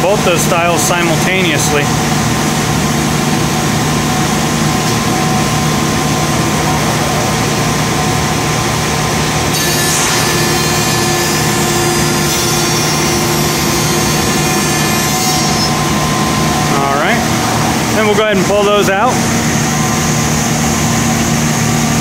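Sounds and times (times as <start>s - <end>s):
router spindle cutting wood: 9.5s - 16.8s.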